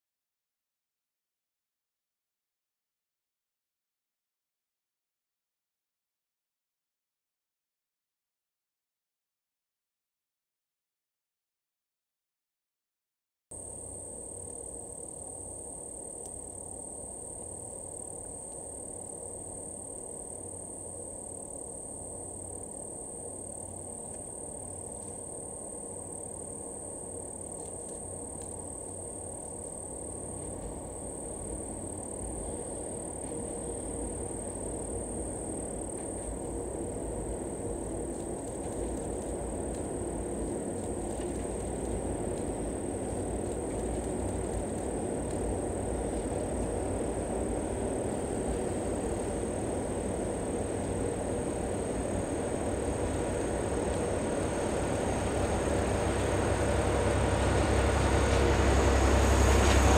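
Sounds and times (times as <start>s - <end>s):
high insect trill: 13.6s - 59.9s
distant train approaching: 29.9s - 59.9s.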